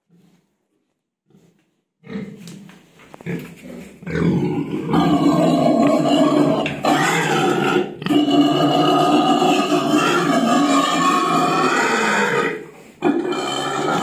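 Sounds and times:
pigs grunting: 0:01.3 - 0:14.0
pig drawn-out call: 0:04.2 - 0:14.0.

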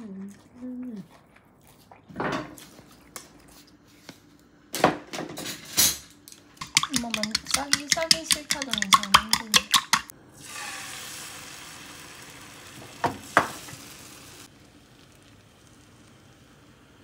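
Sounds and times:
utensil clicking against bowl: 0:06.6 - 0:10.1
food sizzling in frying pan: 0:10.4 - 0:17.0.

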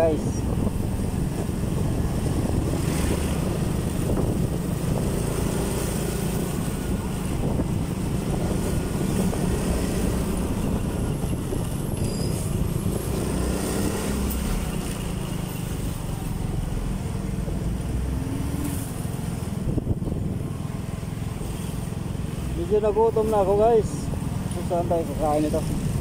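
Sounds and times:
wind buffeting microphone: 0:00.0 - 0:14.8, 0:19.3 - 0:20.6
motorcycle engine rumble: 0:00.0 - 0:26.0
surrounding traffic: 0:00.0 - 0:26.0.

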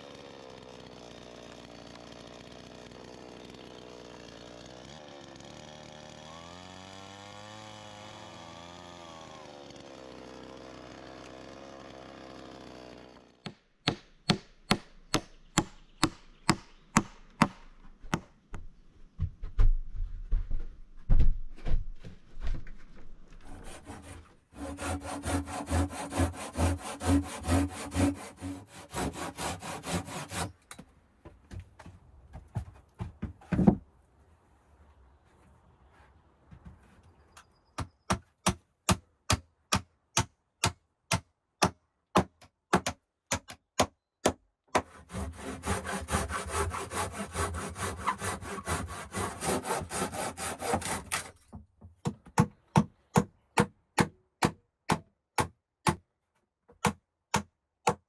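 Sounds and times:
chainsaw running: 0:00.0 - 0:13.5, 0:23.6 - 0:30.5, 0:45.1 - 0:51.4
handsaw cutting plank: 0:00.0 - 0:17.6, 0:23.4 - 0:30.6, 0:44.7 - 0:51.4.

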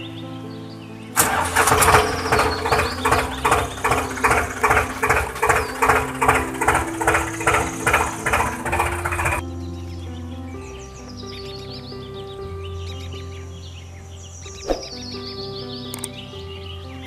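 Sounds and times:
tractor engine chugging: 0:01.2 - 0:09.4.

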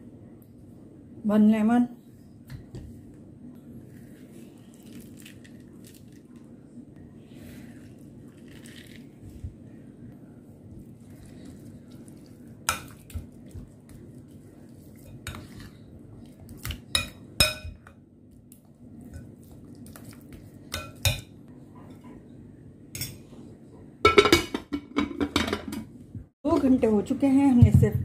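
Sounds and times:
spoon stirring thick marinade: 0:10.6 - 0:17.9.

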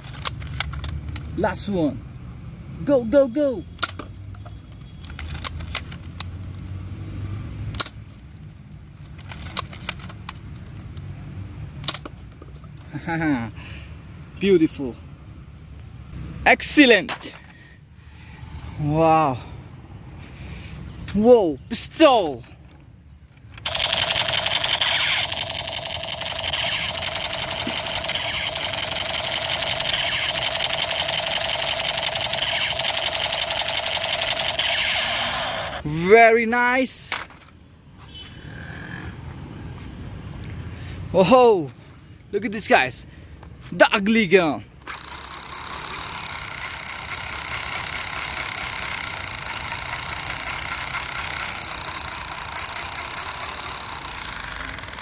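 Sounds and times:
toy pistol rapid rattle: 0:23.6 - 0:35.8, 0:44.8 - 0:55.0.

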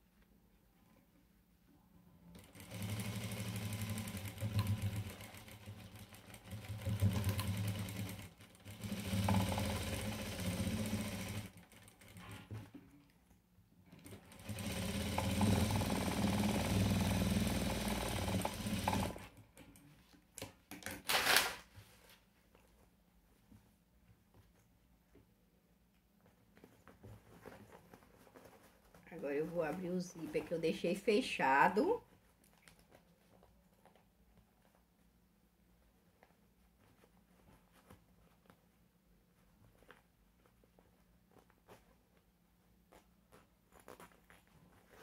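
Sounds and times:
sewing machine stitching: 0:02.3 - 0:12.8, 0:13.9 - 0:19.4.

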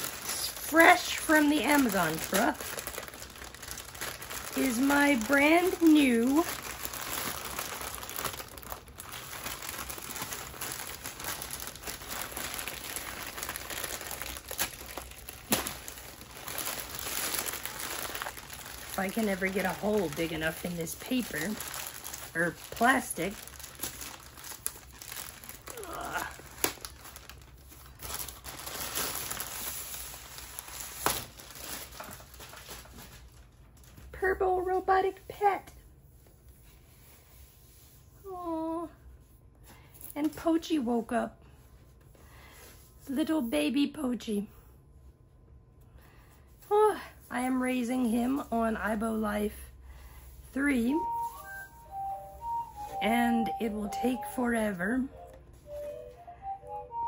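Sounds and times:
packaging wrap crinkling: 0:00.0 - 0:34.2, 0:51.0 - 0:54.4.

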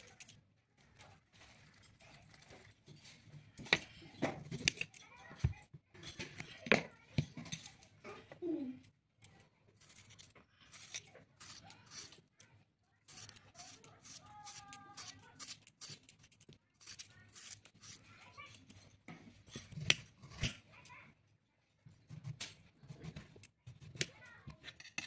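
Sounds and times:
knife scraping cucumber: 0:09.8 - 0:12.2, 0:13.1 - 0:16.2, 0:16.8 - 0:18.2.

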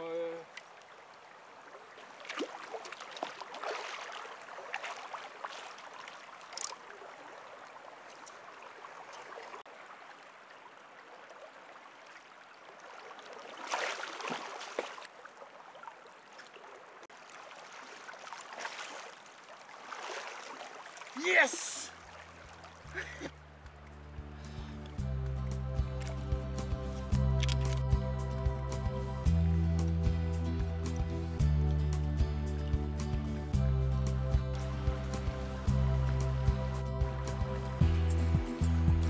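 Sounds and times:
river current rushing: 0:00.0 - 0:25.0.

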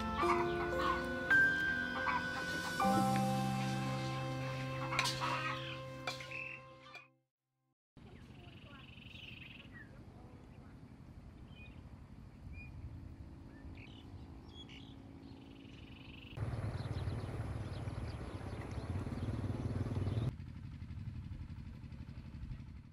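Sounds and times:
small birds chirping: 0:04.7 - 0:07.0, 0:08.0 - 0:20.3.

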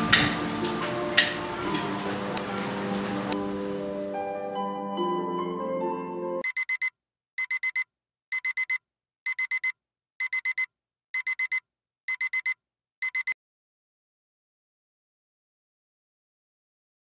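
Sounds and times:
soft plucked music: 0:00.0 - 0:06.4
smartphone alarm beeping: 0:06.4 - 0:13.4.

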